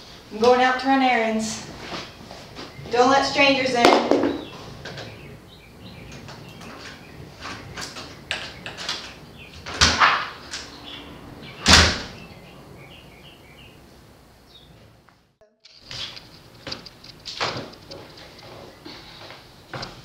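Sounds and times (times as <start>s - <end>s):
door banging: 6.0s - 10.8s, 11.4s - 12.3s.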